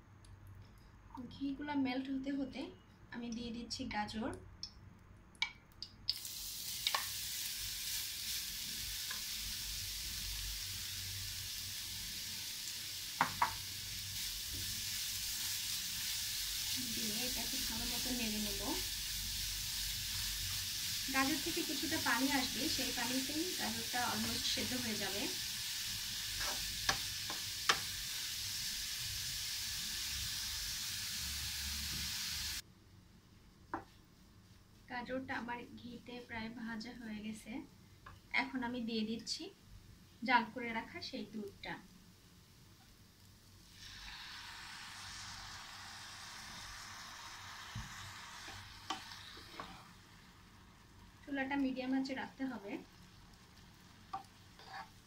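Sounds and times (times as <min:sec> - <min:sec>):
carrot sizzling in a frying pan: 0:06.1 - 0:32.6, 0:40.2 - 0:55.0
wooden spatula knocking pan: 0:13.2 - 0:13.6.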